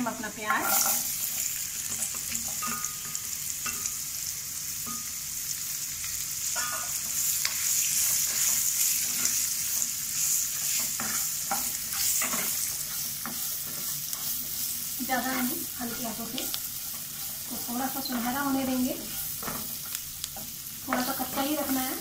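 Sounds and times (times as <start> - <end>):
onions sizzling in hot oil: 0.0 - 22.0
spatula scraping and knocking pan: 0.6 - 4.0, 6.5 - 22.0.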